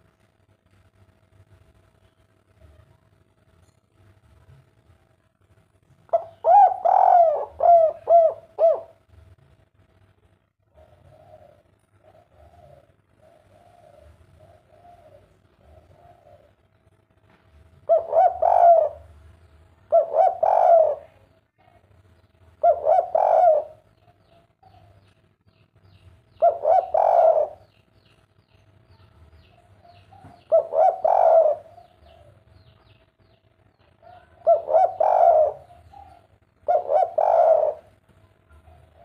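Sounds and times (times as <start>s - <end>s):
dove cooing: 6.1s - 9.2s, 10.7s - 16.7s, 17.8s - 21.8s, 22.6s - 25.0s, 26.3s - 28.0s, 29.4s - 32.7s, 34.0s - 39.0s.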